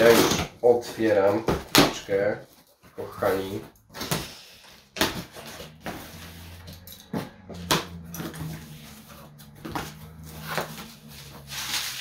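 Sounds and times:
cardboard crackling and rustling: 5.0s - 12.0s.

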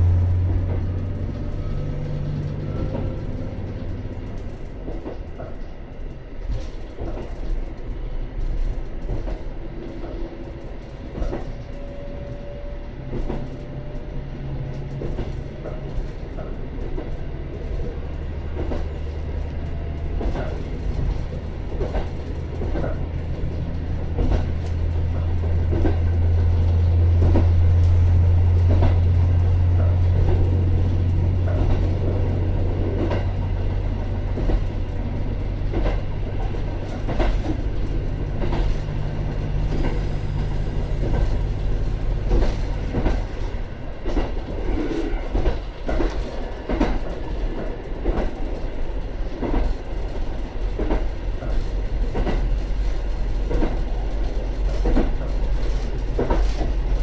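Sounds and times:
railcar engine drone: 0.0s - 57.0s
wheels clacking over rail joints: 14.6s - 57.0s.

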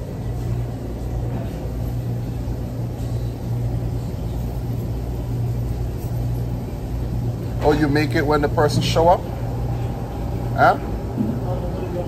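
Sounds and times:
machinery hum and rumble: 0.0s - 12.0s.

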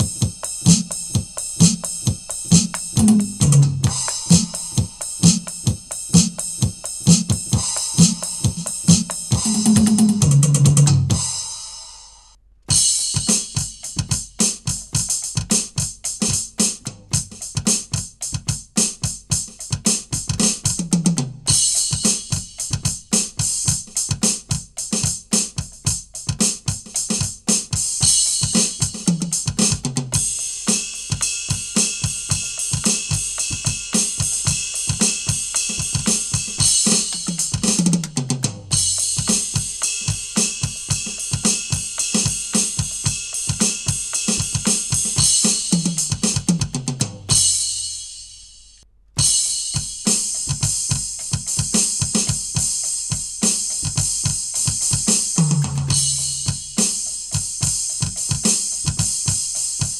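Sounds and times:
electronic drum groove: 0.0s - 12.0s, 12.7s - 59.9s
cymbals ringing: 3.9s - 6.0s, 55.9s - 56.9s.

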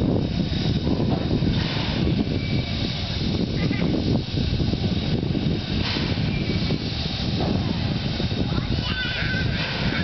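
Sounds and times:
steam hissing: 0.0s - 10.0s
steam locomotive rumbling: 0.0s - 10.0s.

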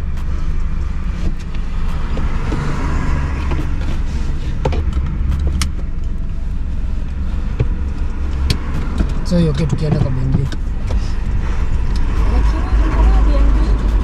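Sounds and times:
car engine idling: 0.0s - 14.0s
seatbelt buckle clicking: 3.4s - 6.3s, 7.6s - 9.2s.

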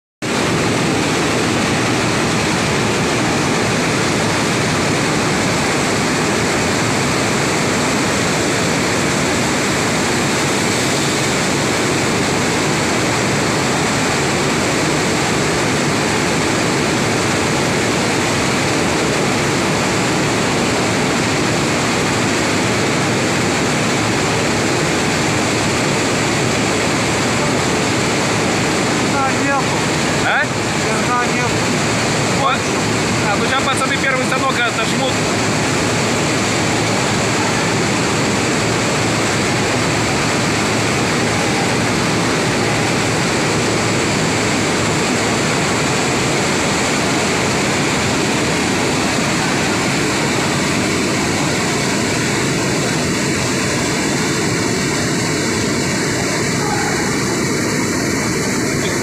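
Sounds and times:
mill machinery roaring: 0.2s - 59.0s.

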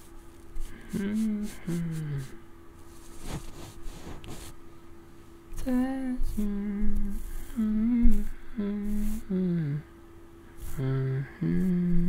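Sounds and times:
soft rustling: 0.0s - 4.6s
man humming: 0.7s - 2.4s, 5.8s - 9.9s, 10.7s - 12.0s.

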